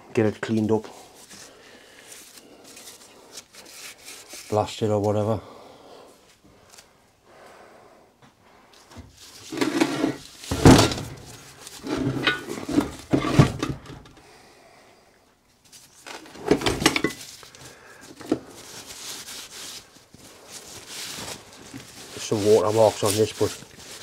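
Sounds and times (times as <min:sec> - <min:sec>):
heavy metal parts clunking on workbench: 0:09.6 - 0:14.1.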